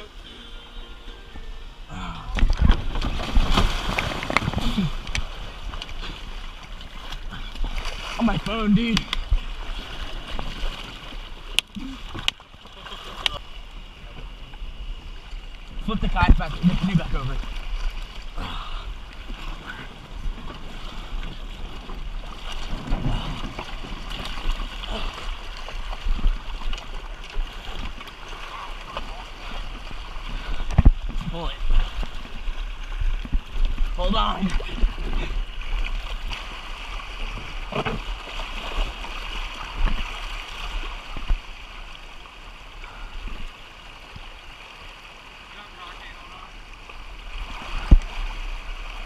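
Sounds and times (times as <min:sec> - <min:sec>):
river current rushing and splashing: 0:00.0 - 0:49.0
heavy low splash: 0:02.0 - 0:05.8.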